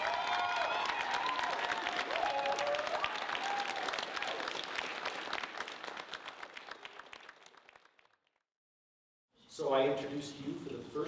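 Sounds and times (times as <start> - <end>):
voices whooping: 0.0 - 4.5
audience applauding: 0.0 - 8.4.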